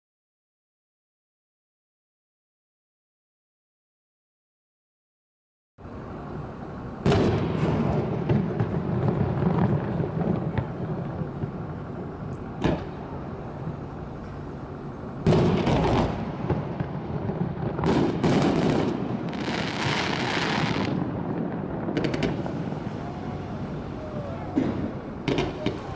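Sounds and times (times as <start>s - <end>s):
rolling rumble: 5.8s - 25.9s
firework crackling hiss: 6.2s - 25.9s
firework shells bursting: 15.2s - 25.9s.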